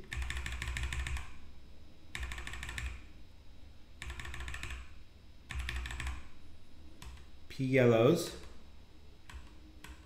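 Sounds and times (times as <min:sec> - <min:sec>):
computer keyboard clicking: 0:00.0 - 0:01.4, 0:02.1 - 0:03.0, 0:04.0 - 0:04.9, 0:05.5 - 0:06.3, 0:07.0 - 0:07.3, 0:09.3 - 0:10.0.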